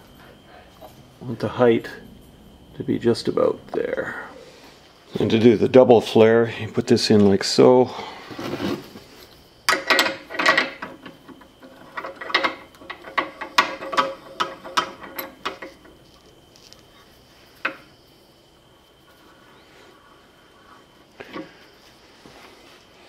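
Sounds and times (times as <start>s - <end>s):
metal tool clinking and rattling: 9.7s - 16.2s.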